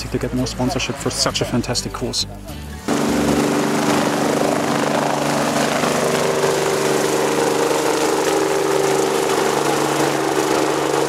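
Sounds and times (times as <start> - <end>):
helicopter flying past: 2.9 - 11.0.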